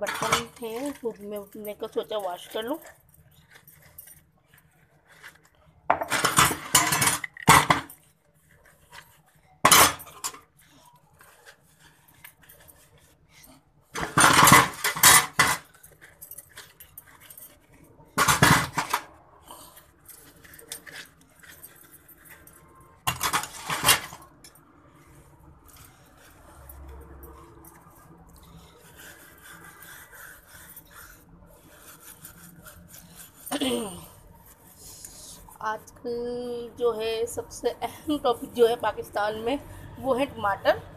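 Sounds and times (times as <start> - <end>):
utensils clattering in steel sink: 0.0 - 2.9, 5.9 - 7.9, 9.6 - 10.4, 13.9 - 15.8, 18.2 - 19.1, 23.0 - 24.6.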